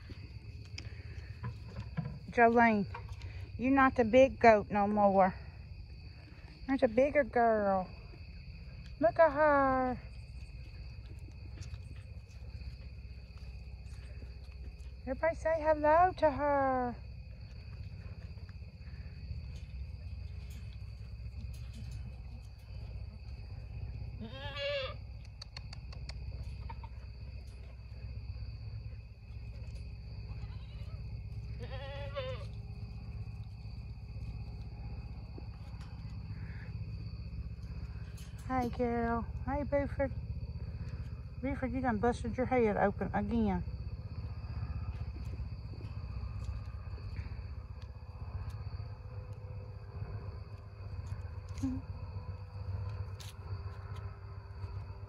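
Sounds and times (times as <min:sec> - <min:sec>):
crickets chirring: 0:00.0 - 0:55.0
low rumble on microphone: 0:00.0 - 0:55.0
goat bleating: 0:24.2 - 0:25.0, 0:30.3 - 0:31.0, 0:31.6 - 0:32.5
faint ticks: 0:24.9 - 0:28.0
sharp clicks: 0:25.2 - 0:26.4.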